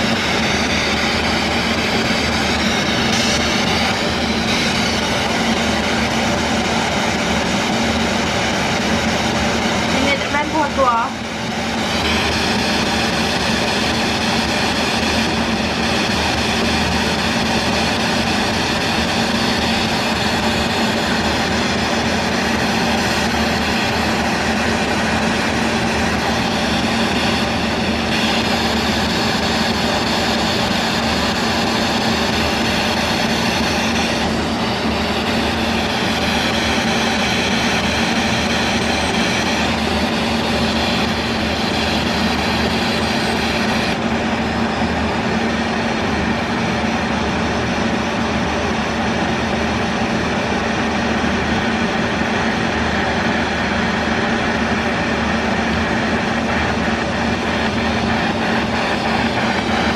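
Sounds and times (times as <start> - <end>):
radio static hiss: 9.1 - 14.1.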